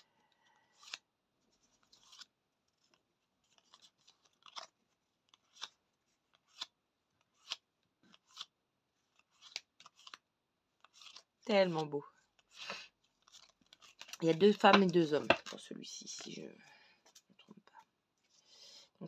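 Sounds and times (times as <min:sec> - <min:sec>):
cards snapping and rustling: 0:00.7 - 0:01.0, 0:01.8 - 0:16.4.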